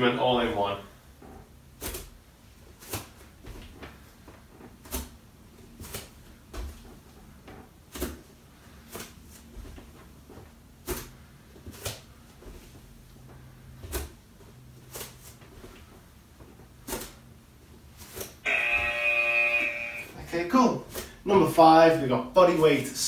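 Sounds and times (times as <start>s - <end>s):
bare feet landing on a mat: 1.8s - 16.0s.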